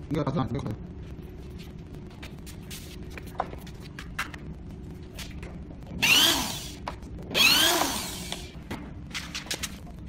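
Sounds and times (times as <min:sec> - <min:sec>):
power drill driving screws: 0:06.0 - 0:06.8, 0:07.4 - 0:08.5.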